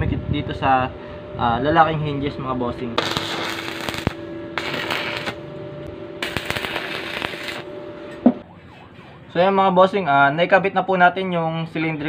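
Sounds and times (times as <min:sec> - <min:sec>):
faint steady hum: 0:00.0 - 0:08.5
welding arc crackle and sizzle: 0:03.0 - 0:05.5, 0:06.2 - 0:08.2.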